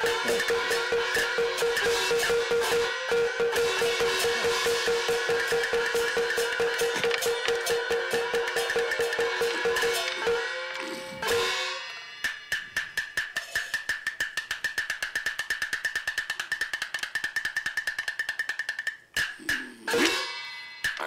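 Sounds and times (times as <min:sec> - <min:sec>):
cymbal crash: 0:00.0 - 0:12.5
fast percussion strikes: 0:00.0 - 0:21.0.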